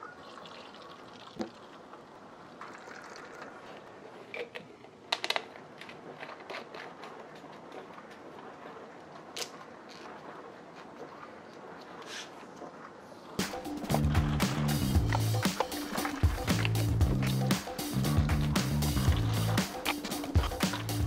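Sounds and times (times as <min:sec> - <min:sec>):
bottle filling from tap: 0:00.0 - 0:01.9, 0:02.6 - 0:03.8.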